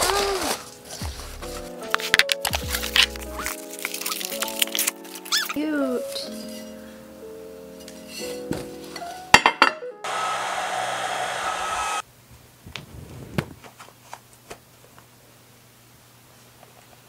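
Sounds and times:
handling clicks and rustles: 0.5s - 5.6s
ceramic dishes clinking: 9.3s - 9.8s
hair dryer blowing: 10.1s - 12.0s.

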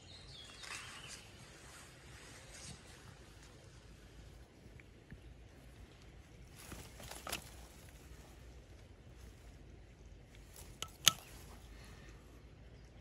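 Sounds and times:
fingers handling thin wires: 10.4s - 11.6s
short clicks: 10.5s - 11.6s.

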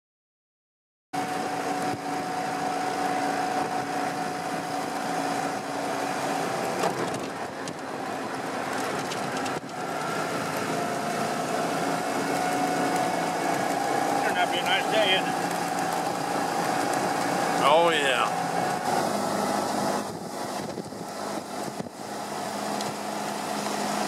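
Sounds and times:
car engine drone: 1.2s - 24.0s
wind rushing: 18.3s - 22.2s.

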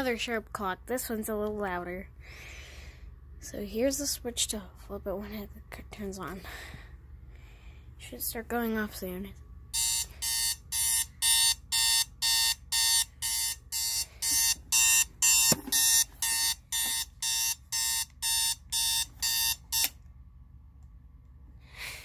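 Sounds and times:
alarm clock beeping: 9.7s - 20.0s.

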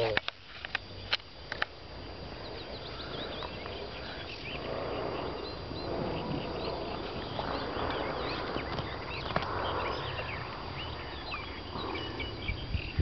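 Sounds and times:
small birds chirping: 0.0s - 13.0s
steady rustling noise: 0.0s - 13.0s
wind rumble on microphone: 0.7s - 13.0s.

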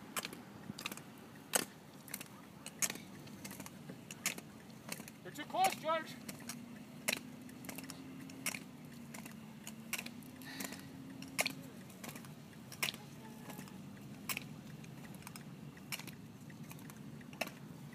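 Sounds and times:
pole tips clicking on asphalt: 0.0s - 17.9s.

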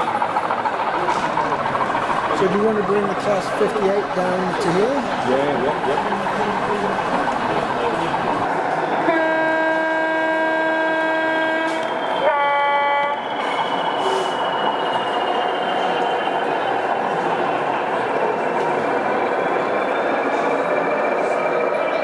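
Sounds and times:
model locomotive running with whine: 0.0s - 22.0s
two-tone locomotive horn: 9.0s - 14.4s.

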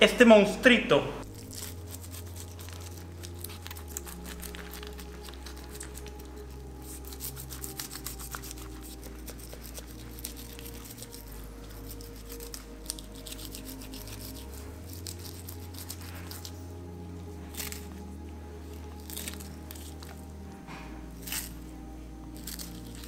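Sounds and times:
background music with low notes: 0.0s - 23.0s
knife slicing fish flesh: 1.3s - 16.6s.

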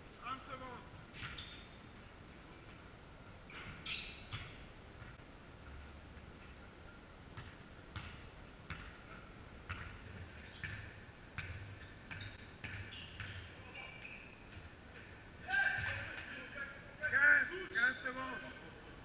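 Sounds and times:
sneaker squeaks: 1.1s - 2.0s, 3.5s - 5.2s, 7.4s - 16.2s
basketball bouncing on wooden floor: 7.4s - 9.0s, 9.7s - 10.0s, 10.6s - 13.5s.

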